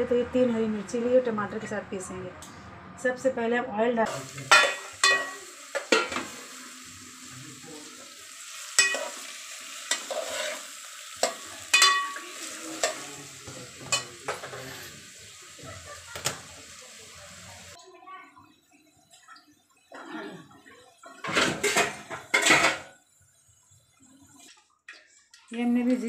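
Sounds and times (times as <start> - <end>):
onions sizzling in oil: 4.1 - 19.9
metal ladle clinking on pot: 4.5 - 6.2, 8.8 - 9.2, 11.2 - 13.0.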